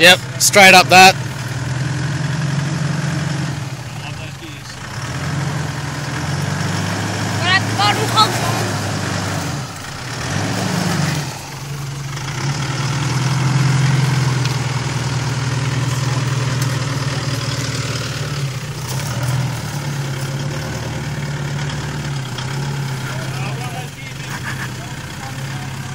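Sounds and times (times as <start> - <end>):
truck engine running: 0.0 - 25.9.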